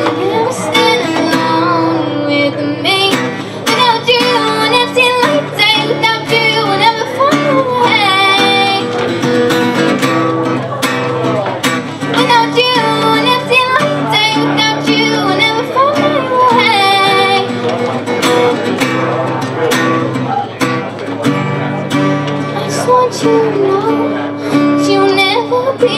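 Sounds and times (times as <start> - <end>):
girl singing: 0.0 - 9.2, 12.0 - 17.7, 22.5 - 25.9
acoustic guitar chords: 0.0 - 25.9.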